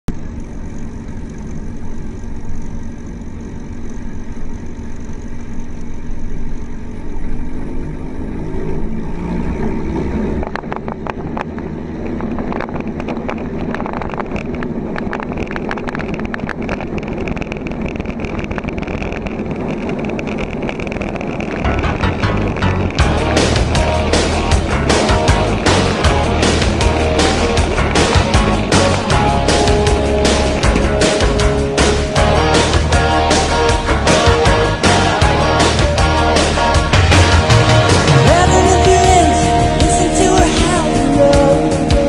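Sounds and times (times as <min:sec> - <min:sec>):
propeller plane engine: 0:00.0 - 0:42.0
wind buffeting microphone: 0:08.8 - 0:32.2.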